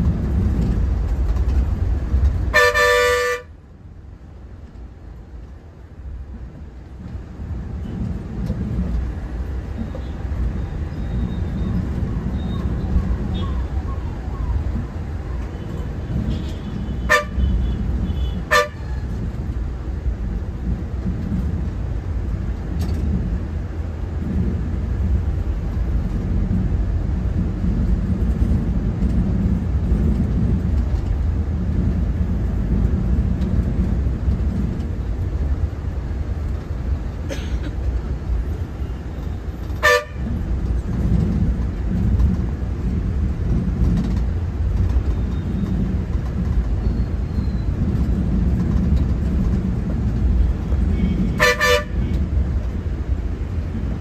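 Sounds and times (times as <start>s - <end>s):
bus engine and road rumble: 0.0s - 54.0s
sharp horn toots: 2.5s - 3.5s, 16.3s - 18.9s, 39.8s - 40.3s, 50.9s - 52.2s.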